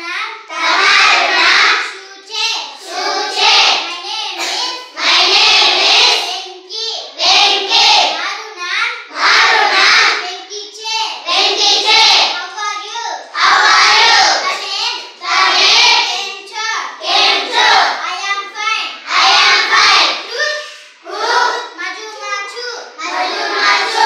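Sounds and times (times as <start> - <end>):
children chanting in unison: 0.0 - 24.0
girl reading aloud: 1.7 - 2.8, 6.1 - 7.2, 8.1 - 9.1, 10.1 - 11.3, 12.3 - 13.3, 17.9 - 19.0, 20.1 - 23.5.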